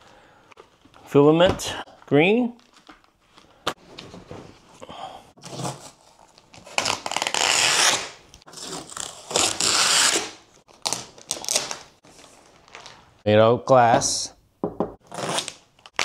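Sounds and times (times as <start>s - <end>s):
packing tape tearing: 5.4s - 13.0s, 15.0s - 16.0s
plastic wrap rustling: 8.9s - 13.2s.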